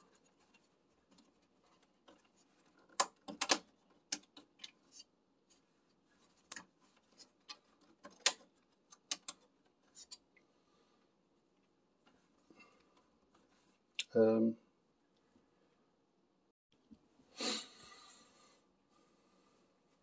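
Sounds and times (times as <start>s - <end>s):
plastic clicks and scrapes: 6.3s - 10.2s.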